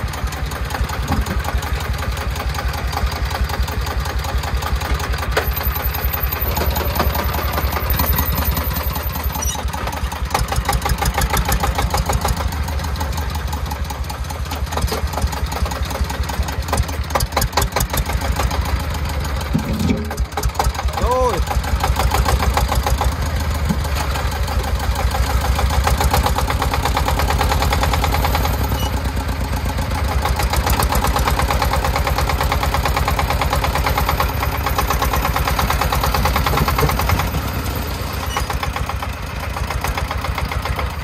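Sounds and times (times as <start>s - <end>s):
diesel engine chugging: 0.0s - 41.0s.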